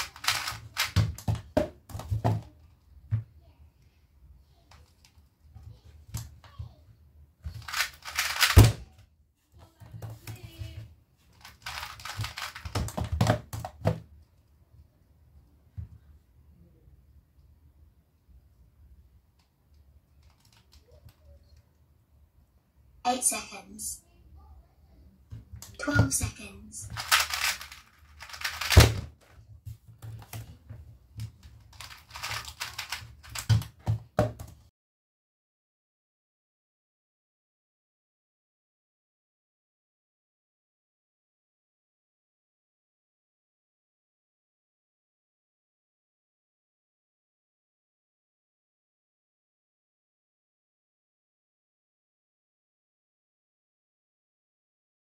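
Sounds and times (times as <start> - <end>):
puzzle cube turning clicks: 0.0 - 1.0, 7.6 - 8.6, 11.4 - 13.0, 26.8 - 29.0, 31.6 - 33.5.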